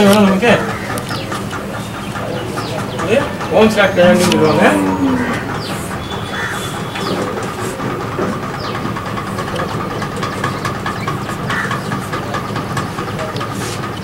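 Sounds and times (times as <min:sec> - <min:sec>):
engine-like drone: 0:00.0 - 0:14.0.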